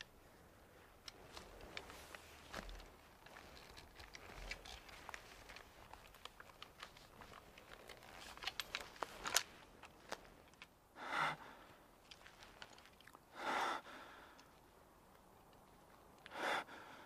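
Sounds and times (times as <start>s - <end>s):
crunching footsteps: 1.0s - 10.6s
heavy exhaled breaths: 11.0s - 11.9s, 13.3s - 14.5s, 16.2s - 17.0s.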